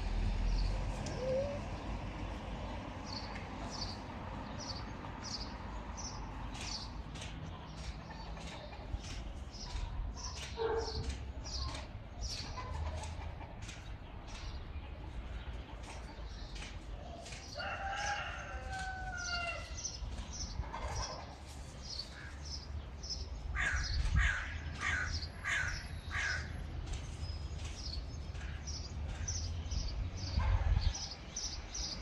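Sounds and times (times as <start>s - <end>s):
low outdoor rumble: 0.0s - 17.1s
small birds chirping: 0.3s - 32.0s.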